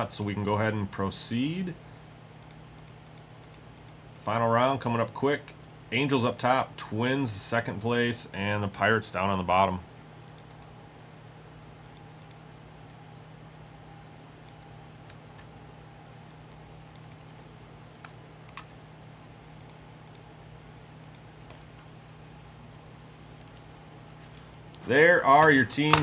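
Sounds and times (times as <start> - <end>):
keyboard and mouse clicks: 0.3 - 0.6, 2.4 - 4.3, 10.2 - 10.7, 11.8 - 13.0, 16.3 - 18.7, 21.0 - 21.7, 23.3 - 23.6.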